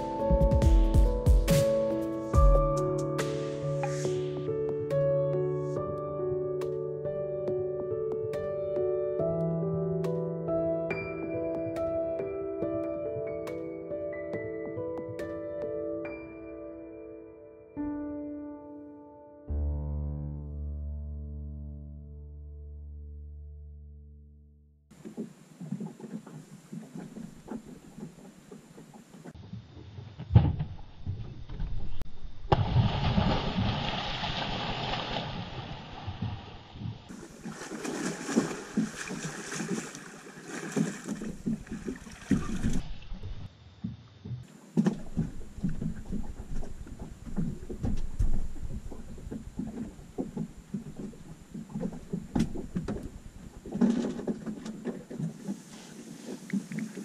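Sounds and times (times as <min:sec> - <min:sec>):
water slapping against boat hull: 0:25.0 - 0:29.4, 0:32.5 - 0:43.5, 0:44.2 - 0:57.0.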